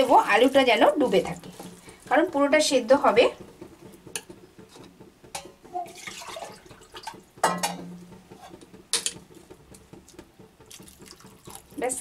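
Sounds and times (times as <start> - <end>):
spoon knocking on pot: 2.7 - 11.7
water pouring into pot: 5.7 - 7.4, 8.9 - 12.0.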